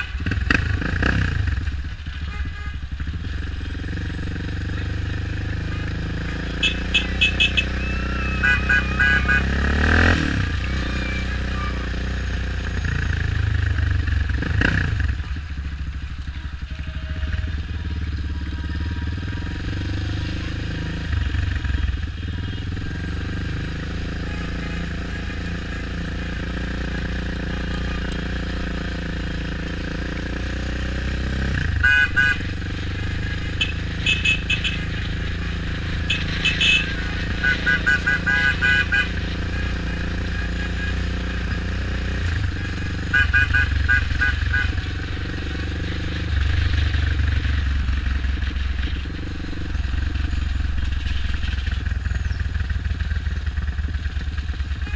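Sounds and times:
motorbike engine at low speed: 0:00.0 - 0:54.9
vehicle horns short beeps: 0:02.2 - 0:03.0, 0:05.5 - 0:13.1, 0:24.0 - 0:25.4, 0:26.9 - 0:28.4, 0:31.6 - 0:32.7, 0:33.5 - 0:35.0, 0:35.9 - 0:45.0.

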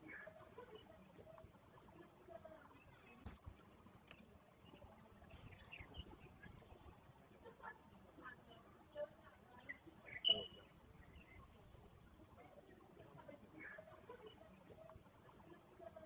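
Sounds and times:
light click: 0:04.0 - 0:04.3.

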